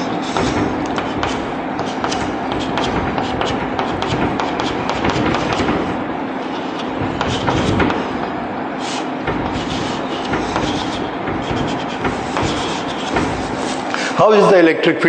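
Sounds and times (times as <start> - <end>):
chalk tapping and scratching: 0.0 - 13.9
steady background noise: 0.0 - 15.0.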